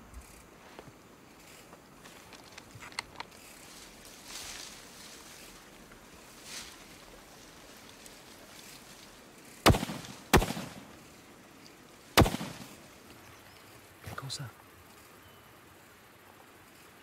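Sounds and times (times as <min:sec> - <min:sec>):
rifle shots with echo: 0:09.6 - 0:10.9, 0:12.2 - 0:12.8.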